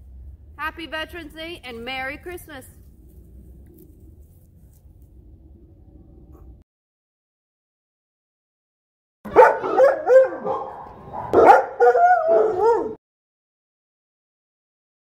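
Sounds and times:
dog barking: 0:09.3 - 0:13.0.

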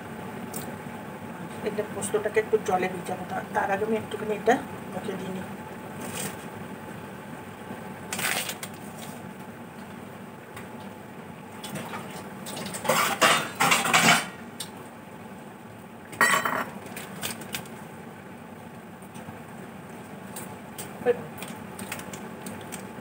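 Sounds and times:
dishes and utensils clattering: 0:12.6 - 0:14.4, 0:16.2 - 0:16.8.

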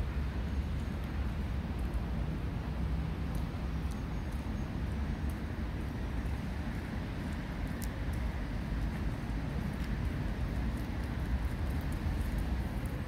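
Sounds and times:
low outdoor rumble: 0:00.0 - 0:13.0
faint high ticks: 0:03.2 - 0:05.5, 0:06.2 - 0:13.0.

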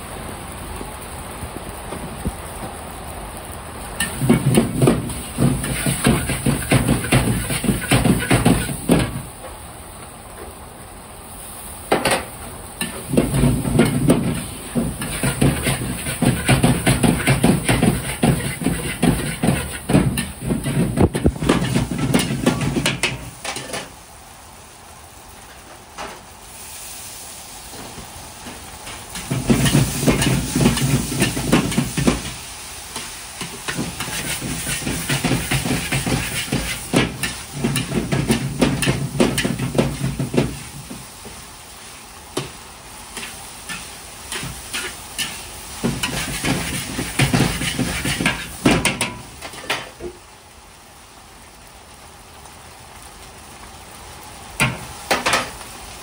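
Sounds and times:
food sizzling in a wok: 0:00.0 - 0:56.0
metal ladle scraping a wok: 0:04.0 - 0:09.0, 0:12.8 - 0:23.9, 0:29.1 - 0:32.4, 0:33.0 - 0:40.7, 0:43.2 - 0:48.6.

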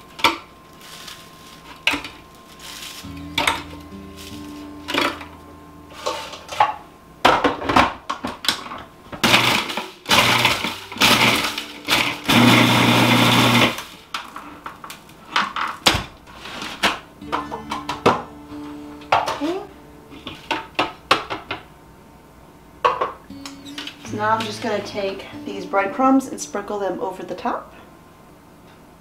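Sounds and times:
food processor motor pulsing: 0:09.2 - 0:14.0.

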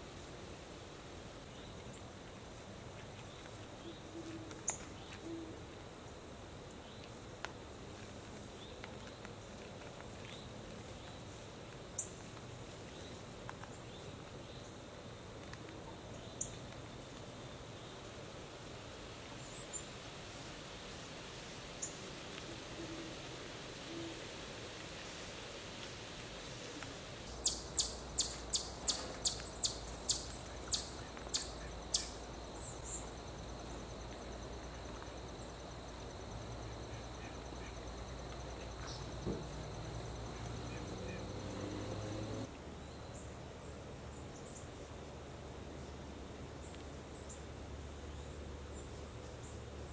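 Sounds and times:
soft background hiss: 0:00.0 - 0:49.9
bird chirping: 0:27.3 - 0:33.1
insect trill: 0:27.3 - 0:42.5.

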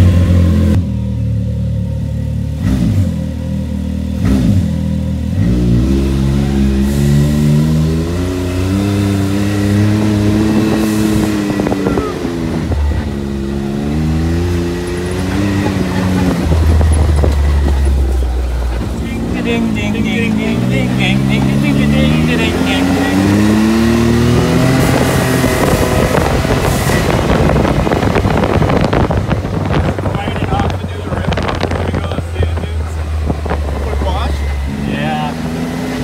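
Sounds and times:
engine idling and revving: 0:00.0 - 0:36.0.

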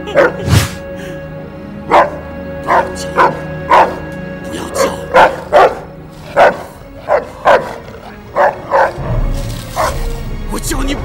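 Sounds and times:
dog barking: 0:00.1 - 0:00.4, 0:01.9 - 0:04.0, 0:04.8 - 0:09.0, 0:09.8 - 0:10.0.

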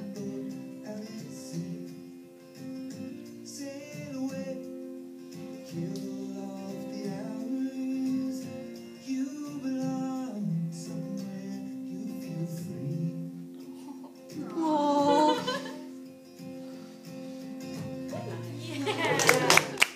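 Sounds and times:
person singing a melody: 0:00.0 - 0:02.1, 0:03.5 - 0:04.7, 0:05.7 - 0:15.9.

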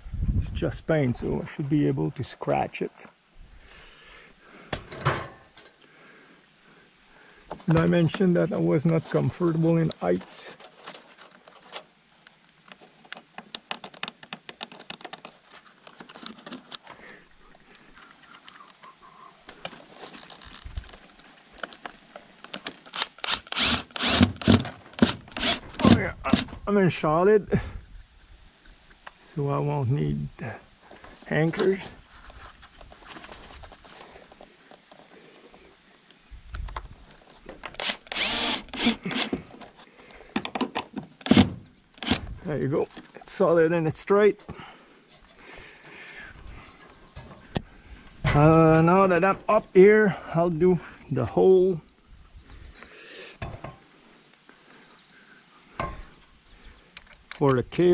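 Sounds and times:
small clicks taps and scrapes: 0:09.8 - 0:17.0, 0:17.7 - 0:23.0
cordless drill driving screws: 0:22.9 - 0:26.5, 0:37.7 - 0:39.4, 0:41.2 - 0:42.3.

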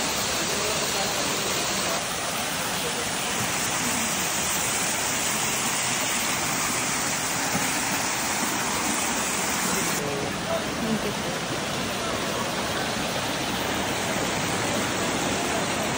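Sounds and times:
waterfall rushing over rocks: 0:00.0 - 0:15.9.

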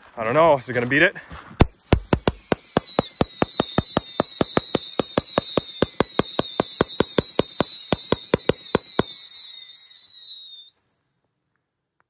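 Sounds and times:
firework volley: 0:01.3 - 0:10.7
falling high whistle: 0:01.6 - 0:10.8.

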